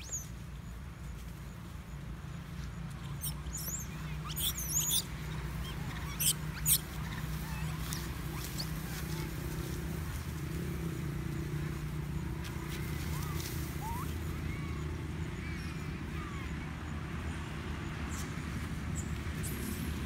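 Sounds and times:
baby monkeys squealing: 3.0 - 9.5, 12.6 - 16.4.

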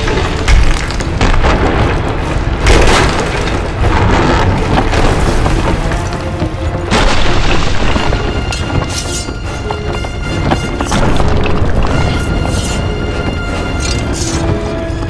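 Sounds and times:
dramatic orchestral film score: 0.0 - 15.0.

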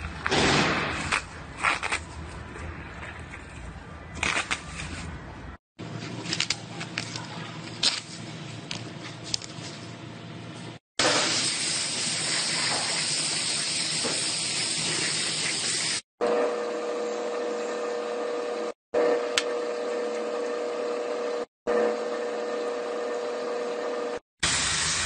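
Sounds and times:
steady mechanical hum: 5.0 - 10.8.

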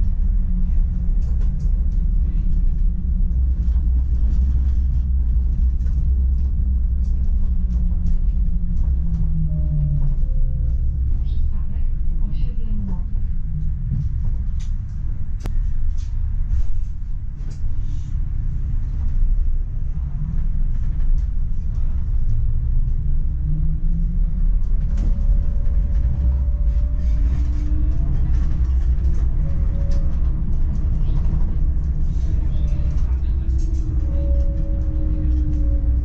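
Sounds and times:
tram rumbling along track: 0.0 - 36.0
faint rising whine: 22.1 - 36.0.

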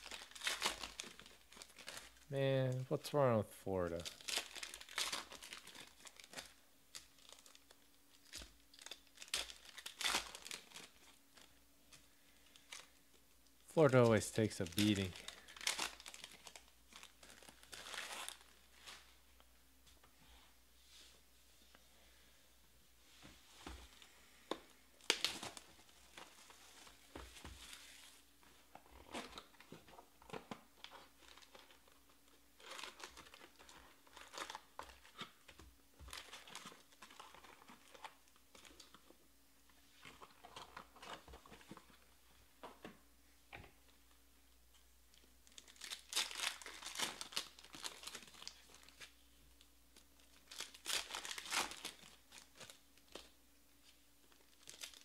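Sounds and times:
foil wrappers crinkling and tearing: 0.0 - 2.3, 4.0 - 11.5, 14.0 - 19.1, 25.0 - 27.0, 28.9 - 39.0, 45.2 - 49.3, 49.9 - 55.0.

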